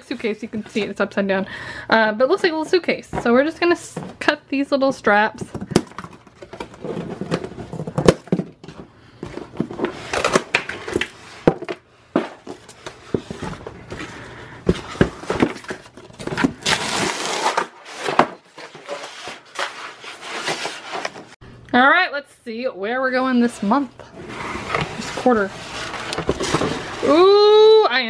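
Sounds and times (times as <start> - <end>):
cardboard sliding scrape: 16.5 - 21.4, 24.1 - 27.3.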